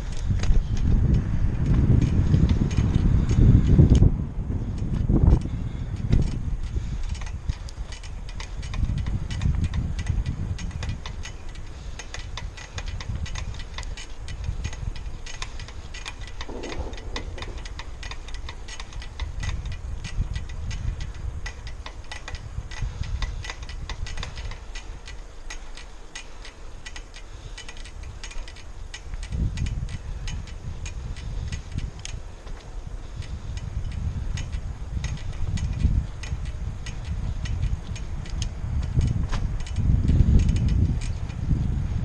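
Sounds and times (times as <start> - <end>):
bicycle ticking and rattling: 0.0 - 42.0
wind rumble on microphone: 0.0 - 42.0.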